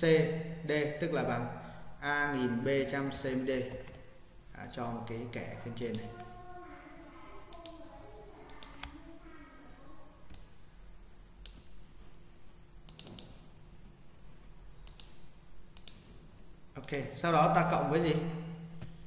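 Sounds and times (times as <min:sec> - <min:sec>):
low steady hum: 0:00.0 - 0:19.0
computer mouse clicking: 0:07.5 - 0:09.0, 0:10.2 - 0:11.8, 0:12.8 - 0:13.5, 0:14.8 - 0:16.2.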